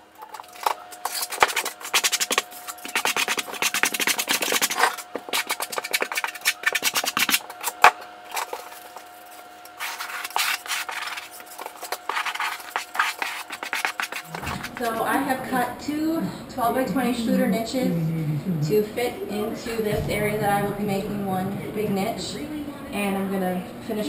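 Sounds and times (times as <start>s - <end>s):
trowel scraping mortar: 0.2s - 15.0s.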